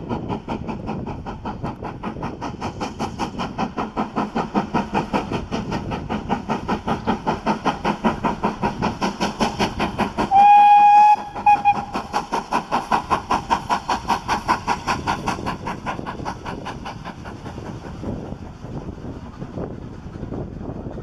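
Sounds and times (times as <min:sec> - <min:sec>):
coach wheels rumbling on rails: 0:00.0 - 0:21.0
steam locomotive exhaust beat: 0:00.0 - 0:21.0
steam locomotive whistle: 0:10.3 - 0:12.0.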